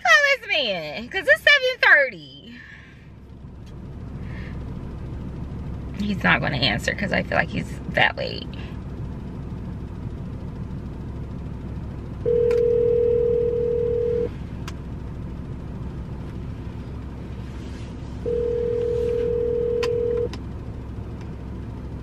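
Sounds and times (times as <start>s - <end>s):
phone ringback tone: 12.3s - 14.3s, 18.2s - 20.3s.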